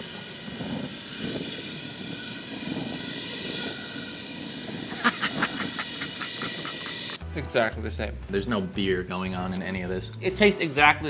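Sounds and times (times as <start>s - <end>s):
torch flame hissing: 0.0s - 7.2s.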